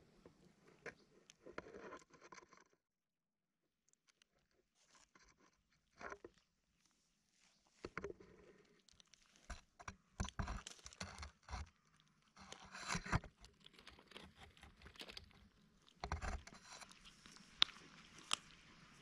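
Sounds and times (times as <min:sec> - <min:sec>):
kittens chewing and crunching food: 0:00.1 - 0:02.6, 0:03.9 - 0:19.0
scrapes and knocks on camera: 0:07.8 - 0:08.6, 0:09.4 - 0:11.7, 0:12.4 - 0:17.2.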